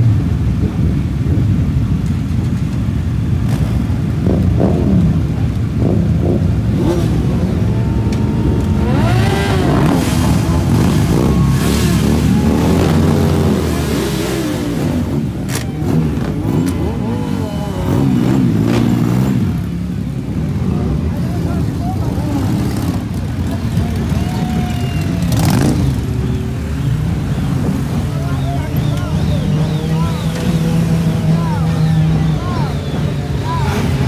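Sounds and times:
motorcycle engines revving: 0.0s - 34.0s
motorcycles idling: 0.0s - 34.0s.

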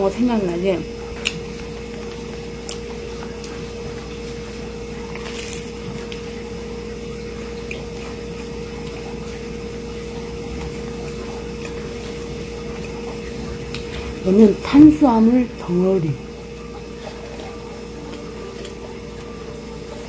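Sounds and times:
steady machine hum: 0.0s - 20.0s
faint chewing: 1.1s - 6.5s, 7.4s - 14.2s, 16.5s - 20.0s
crunch of biting a sandwich: 5.0s - 6.3s.

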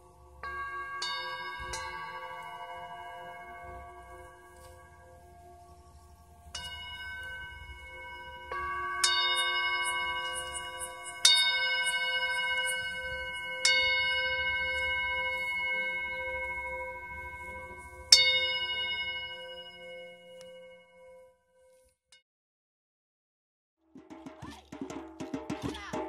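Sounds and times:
struck metal bell ringing: 0.0s - 5.0s, 6.5s - 21.2s
faint high tinkling: 0.0s - 22.0s.

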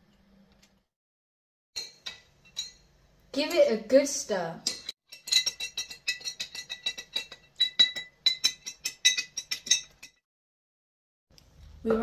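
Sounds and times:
teaspoon clinking in glass jar: 4.7s - 10.2s.

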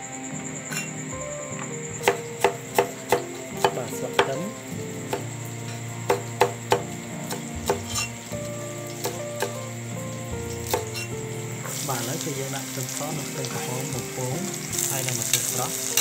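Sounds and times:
knife chopping on wooden board: 2.0s - 4.4s, 6.1s - 8.0s.

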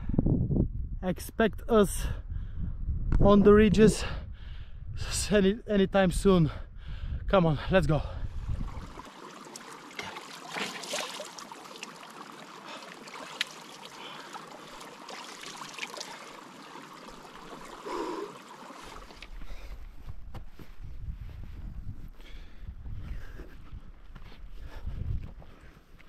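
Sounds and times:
footsteps on hill path: 18.6s - 26.0s.

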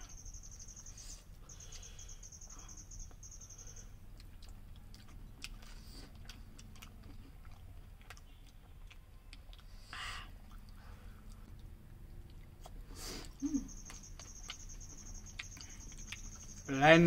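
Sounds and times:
people chewing food: 0.0s - 17.0s.

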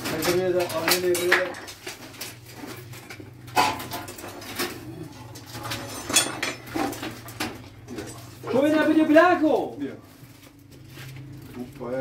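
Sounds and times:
objects knocking and clattering: 0.0s - 8.9s.

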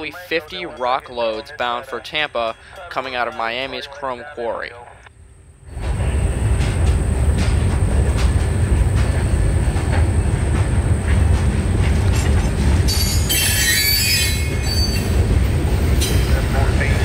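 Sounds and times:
freight train cars rumbling: 5.2s - 17.0s
high metallic squeal: 12.9s - 15.2s.

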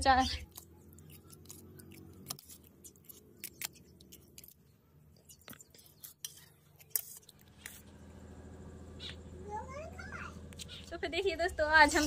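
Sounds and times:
chewing: 0.4s - 7.9s
spoon scraping a steel plate: 5.7s - 7.8s.

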